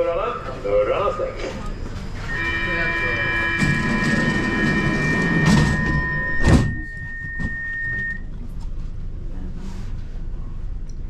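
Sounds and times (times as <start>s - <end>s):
door-closing warning tone: 2.2s - 8.3s.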